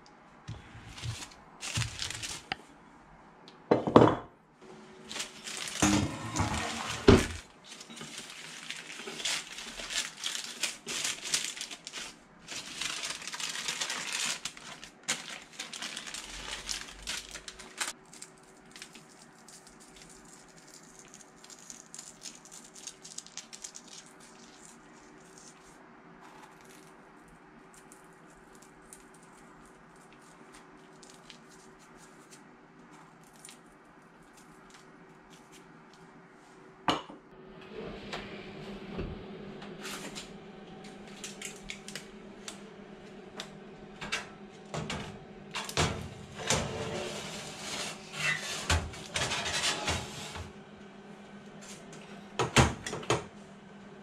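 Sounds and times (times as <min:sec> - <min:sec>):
baking paper crinkling: 0:00.5 - 0:02.7, 0:05.0 - 0:36.2, 0:41.0 - 0:42.1
faint steady hum: 0:04.3 - 0:54.0.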